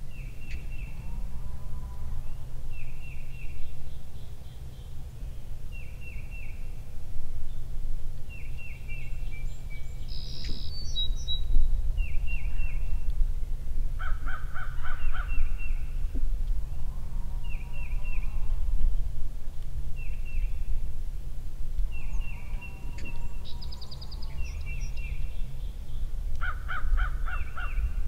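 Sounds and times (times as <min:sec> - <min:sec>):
steady low rumble: 0:00.0 - 0:28.0
harsh bird calls: 0:14.0 - 0:18.7, 0:21.9 - 0:28.0.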